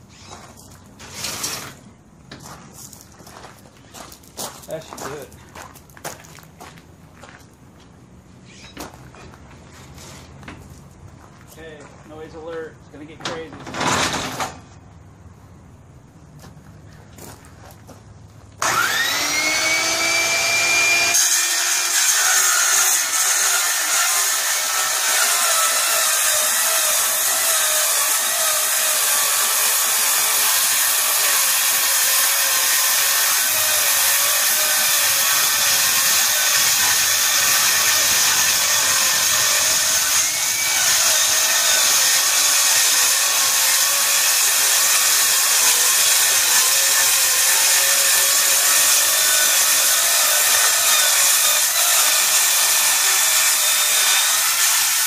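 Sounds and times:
circular saw cutting metal: 18.6 - 55.0.

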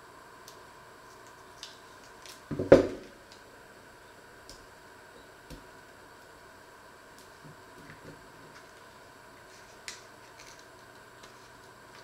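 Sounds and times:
knocks on wooden worktop: 2.5 - 3.0
foil rustling: 8.5 - 12.0.

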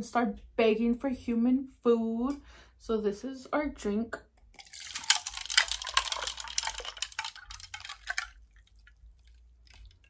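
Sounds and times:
fizzy drink pouring: 4.5 - 10.0.

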